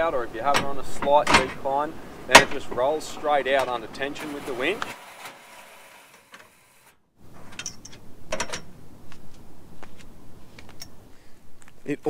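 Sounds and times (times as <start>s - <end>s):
metal arms and rollers rattling: 0.0s - 8.7s.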